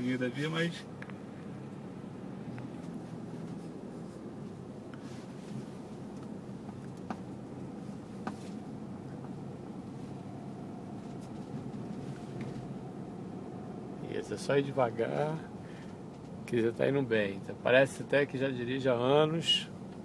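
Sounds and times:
engine hum and road noise: 0.0 - 20.0.

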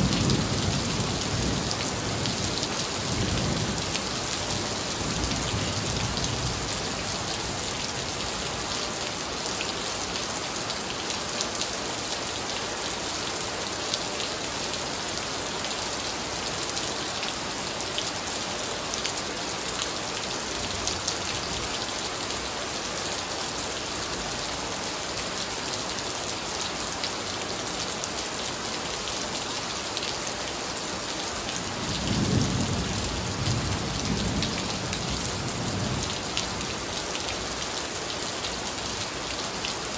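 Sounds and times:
heavy rain on tiles and foliage: 0.0 - 39.9
low rumble of thunder: 31.8 - 36.2.

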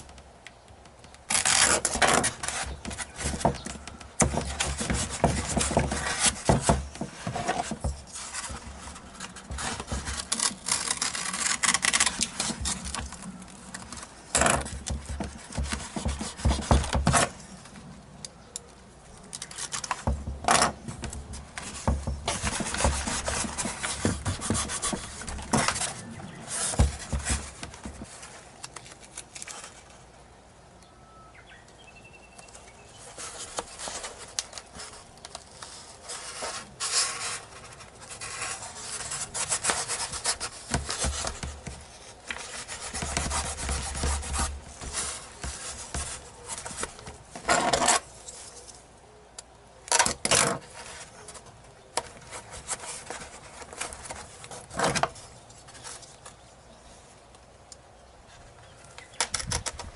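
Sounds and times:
hands rubbing tape: 0.7 - 17.8, 18.6 - 30.0, 32.5 - 48.8
tape being pulled: 0.7 - 17.8, 19.2 - 30.0, 32.4 - 48.8.

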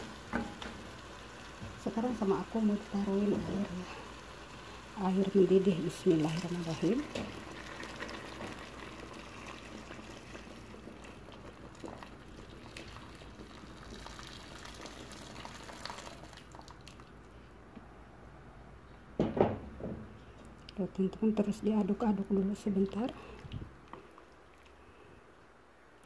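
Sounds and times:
water pouring into a pot: 0.0 - 17.1.

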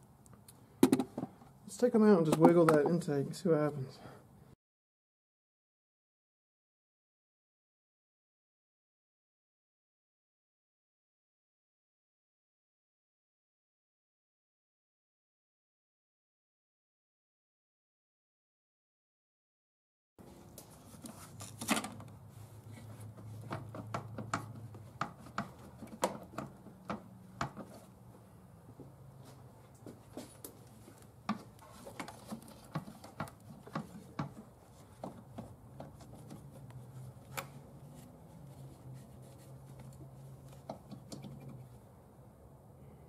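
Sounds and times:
hands working loose engine parts: 20.3 - 28.0, 30.2 - 41.8.

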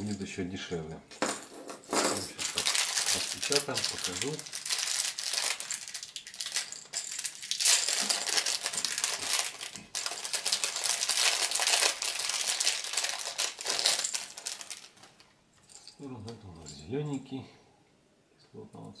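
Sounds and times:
plastic bag crinkling: 2.1 - 15.2.

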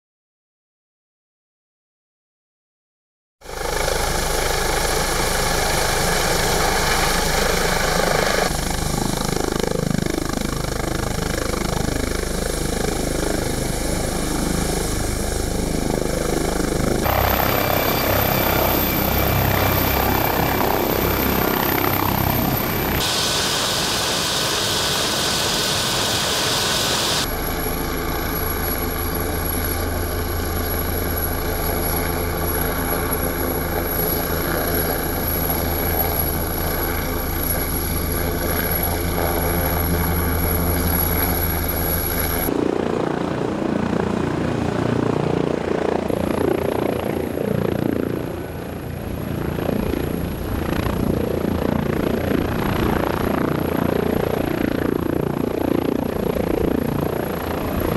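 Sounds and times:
helicopter turbine whine: 3.4 - 57.9
rotor blades gusting: 4.4 - 31.4.

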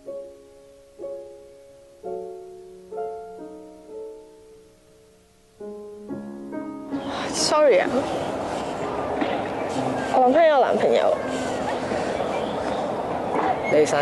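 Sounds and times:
soft slow solo piano: 0.0 - 10.2.

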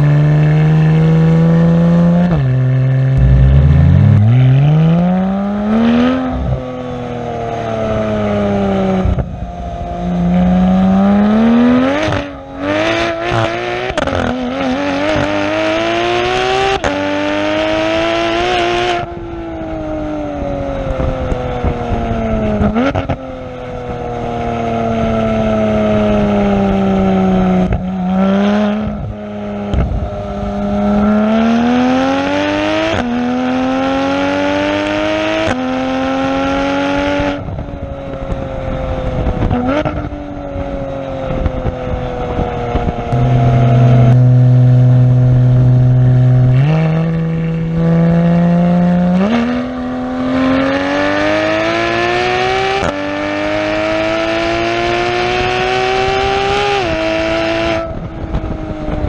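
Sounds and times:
car exhaust accelerating hard: 2.2 - 6.6, 39.1 - 53.0
engine throttle blips: 3.1 - 6.6, 41.3 - 50.9.

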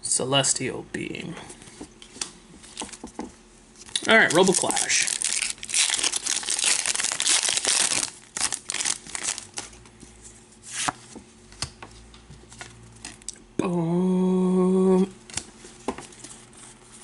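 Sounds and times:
foil wrapper crinkling: 3.8 - 9.8.

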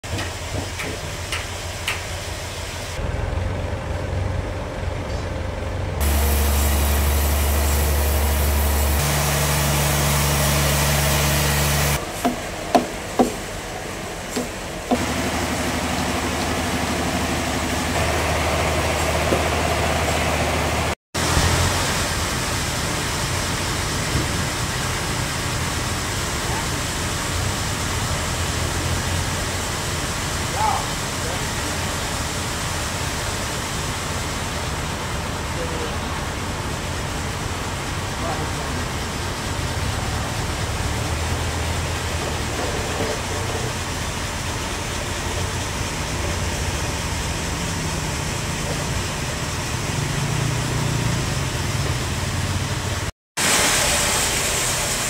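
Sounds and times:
forklift engine running: 0.0 - 55.0
chisel knocking on wood: 12.2 - 13.4.

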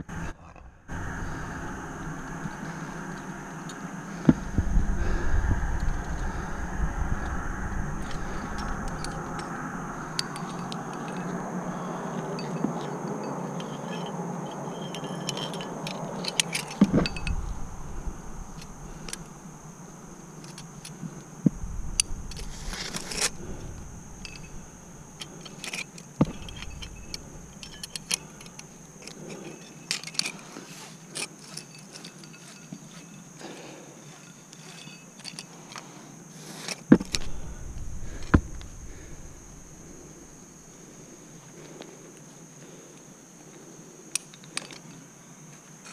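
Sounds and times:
rushing noise: 0.0 - 12.2, 16.5 - 20.4, 21.4 - 28.9, 37.0 - 41.1
carabiners clinking: 5.6 - 42.0, 44.1 - 45.9.

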